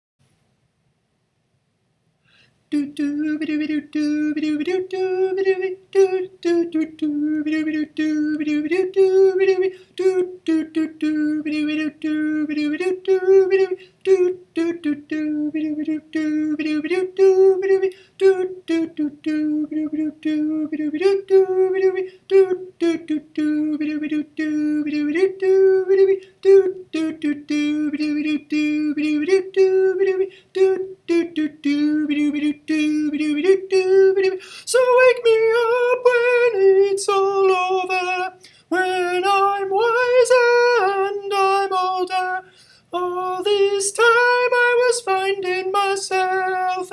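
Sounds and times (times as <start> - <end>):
man singing unaccompanied: 2.7 - 46.9.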